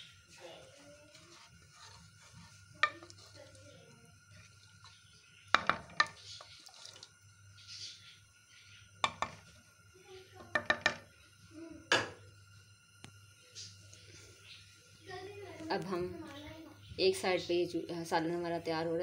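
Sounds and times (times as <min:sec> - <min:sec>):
faint steady hum: 0:00.0 - 0:19.0
spoon stirring in metal pot: 0:00.7 - 0:07.9, 0:09.0 - 0:09.6
spoon knocking against pot: 0:02.8 - 0:03.3, 0:05.5 - 0:06.3, 0:09.0 - 0:09.5, 0:10.4 - 0:11.1, 0:11.9 - 0:12.2.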